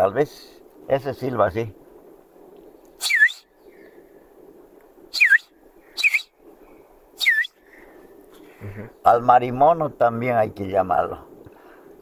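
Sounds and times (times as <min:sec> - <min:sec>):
man whistling through fingers: 0:03.0 - 0:03.5, 0:05.1 - 0:06.3, 0:07.2 - 0:07.6.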